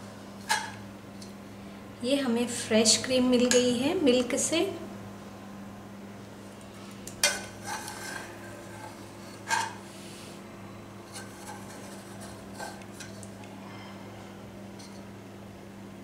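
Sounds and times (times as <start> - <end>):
spoon scraping metal pot: 7.2 - 9.8.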